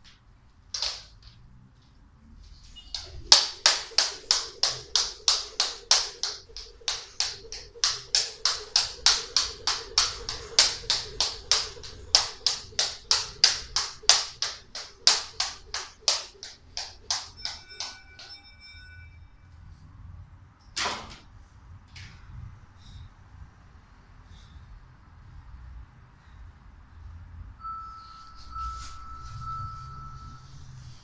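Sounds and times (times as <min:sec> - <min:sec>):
jump rope clacking on wooden floor: 0:03.0 - 0:18.3.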